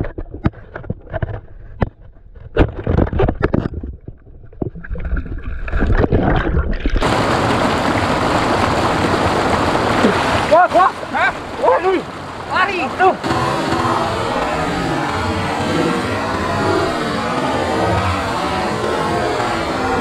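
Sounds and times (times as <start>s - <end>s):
water splashing: 3.8s - 20.0s
rushing stream water: 7.0s - 20.0s.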